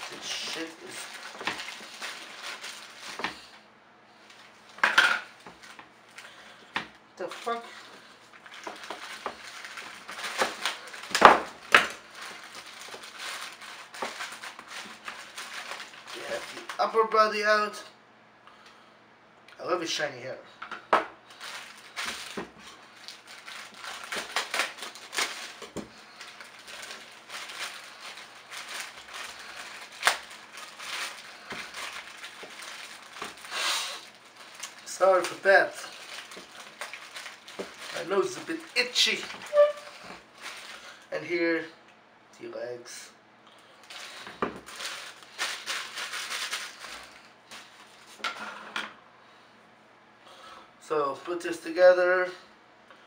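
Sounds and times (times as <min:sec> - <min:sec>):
plastic packaging crinkling: 0:00.0 - 0:03.6, 0:04.2 - 0:17.0, 0:21.3 - 0:41.1, 0:43.7 - 0:48.3.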